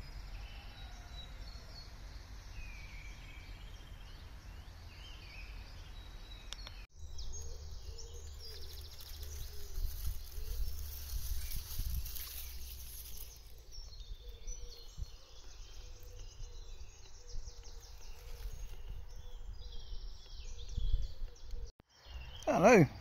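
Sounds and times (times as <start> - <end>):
small birds chirping: 0.0 - 23.0
wind rumble on microphone: 8.0 - 21.7.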